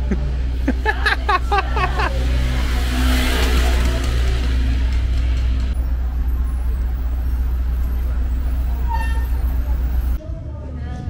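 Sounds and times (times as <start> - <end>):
motorcycle passing by: 0.8 - 10.2.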